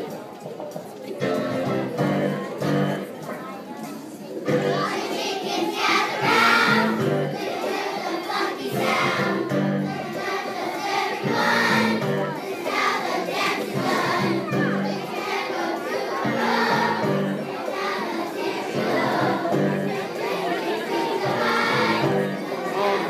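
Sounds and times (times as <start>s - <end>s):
children's choir singing: 0.0s - 23.0s
musical accompaniment: 1.1s - 3.4s, 4.4s - 23.0s.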